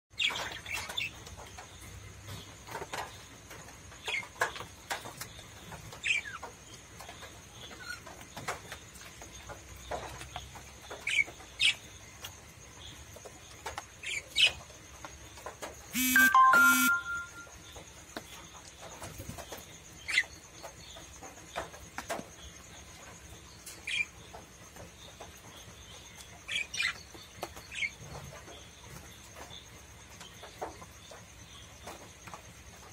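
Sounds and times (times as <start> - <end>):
parrots chirping: 16.0 - 17.4
long two-part bird call: 16.0 - 17.5.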